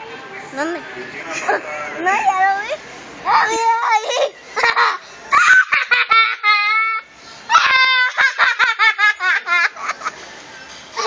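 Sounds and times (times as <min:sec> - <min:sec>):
boy laughing: 0:04.0 - 0:10.2.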